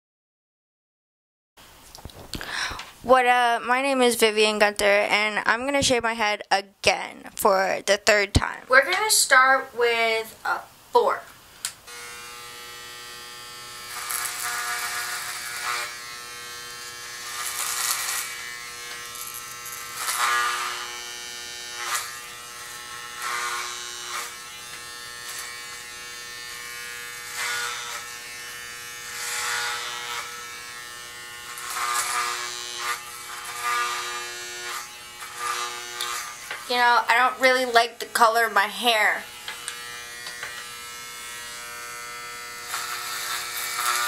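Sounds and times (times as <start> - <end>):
electric hair clippers buzzing: 11.6 - 44.0.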